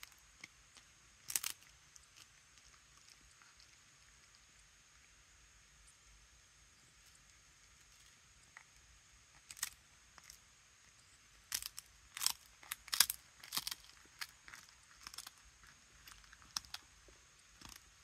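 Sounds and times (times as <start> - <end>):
cat crunching a treat: 0.0 - 5.0, 11.5 - 18.0.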